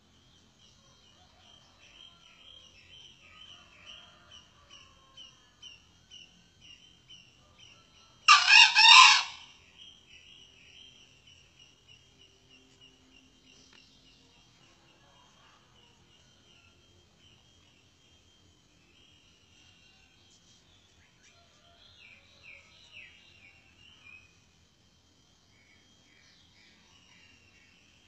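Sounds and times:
rooster crowing: 8.2s - 9.5s.

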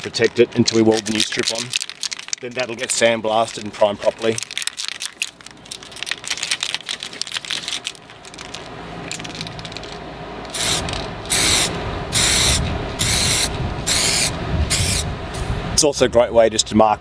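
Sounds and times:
aerosol can rattling: 0.0s - 15.0s
aerosol spray hisses: 10.6s - 15.5s.

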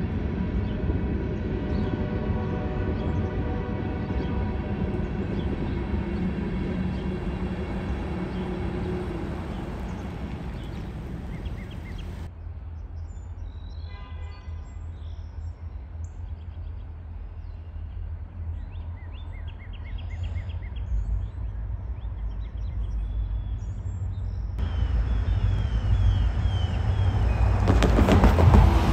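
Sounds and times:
distant diesel locomotive rumble: 0.0s - 12.3s, 14.8s - 28.9s
freight cars over grade crossing: 0.0s - 12.3s, 20.6s - 28.9s
birds chirping: 0.5s - 12.3s, 19.0s - 28.9s.

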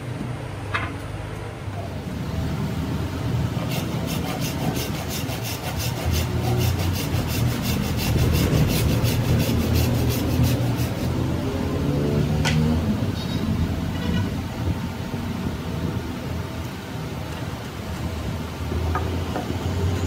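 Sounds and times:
blade shaving wood: 3.6s - 11.3s.

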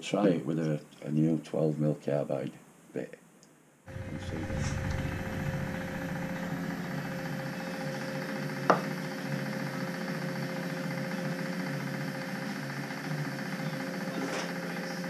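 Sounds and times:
milling machine motor hum: 3.9s - 15.0s.

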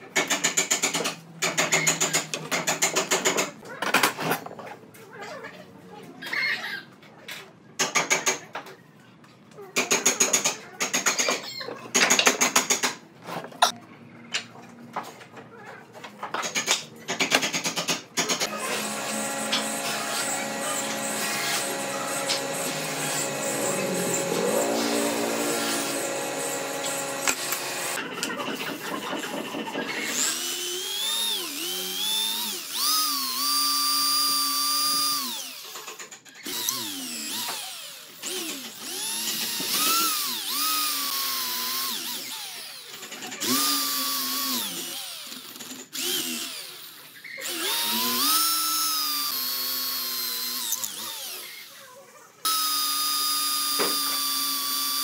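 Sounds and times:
electric drill boring into wood: 18.4s - 28.0s, 30.0s - 51.8s, 52.4s - 55.0s.

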